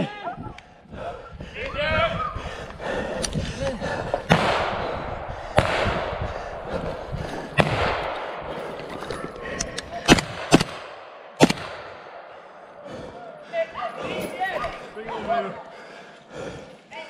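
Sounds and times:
rifle shots echoing: 4.3 - 12.8.

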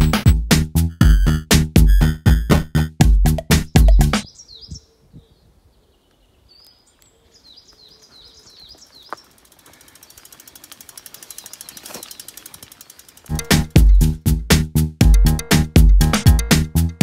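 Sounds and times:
music: 0.0 - 4.2, 13.3 - 17.0
birds chirping: 3.4 - 14.3
bicycle freewheel hub clicking: 9.0 - 14.0.

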